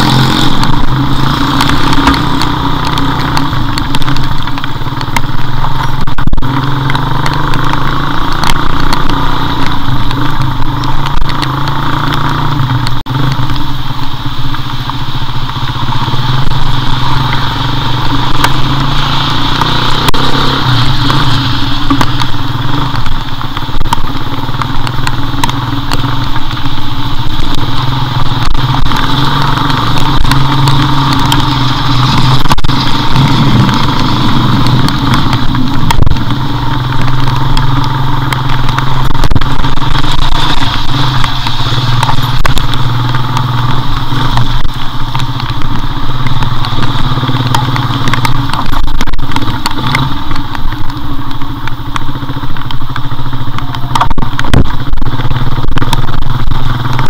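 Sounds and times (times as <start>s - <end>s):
motorcycle engine running: 0.0s - 57.0s
wind noise: 0.0s - 57.0s.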